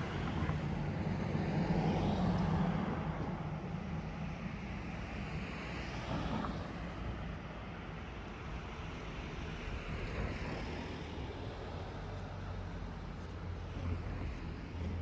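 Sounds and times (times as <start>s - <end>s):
car driving on road: 0.0s - 15.0s.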